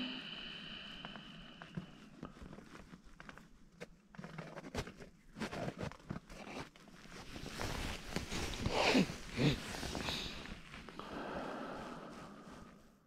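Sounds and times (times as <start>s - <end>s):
handling rustling and scraping: 1.6s - 11.0s.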